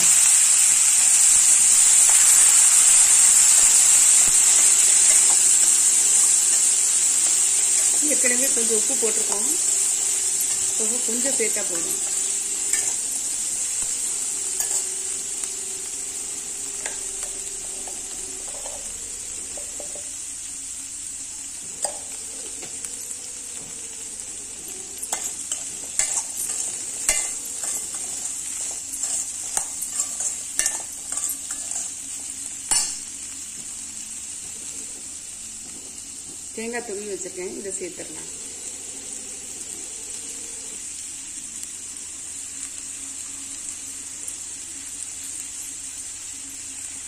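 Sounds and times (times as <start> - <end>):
chickpeas sizzling in a pan: 0.0 - 47.0
metal spatula scraping pan: 14.6 - 15.1, 25.0 - 32.0.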